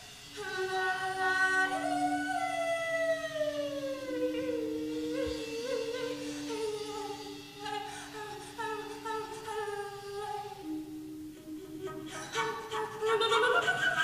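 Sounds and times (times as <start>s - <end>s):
slow jazz ensemble: 0.0s - 13.8s.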